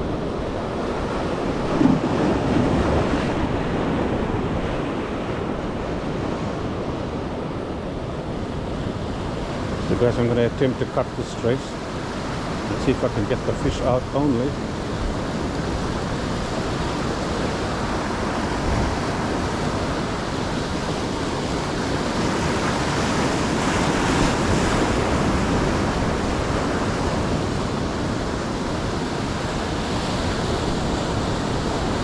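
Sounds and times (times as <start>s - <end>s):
wind on microphone: 0.0s - 10.2s
ocean surf washing in: 0.0s - 32.0s.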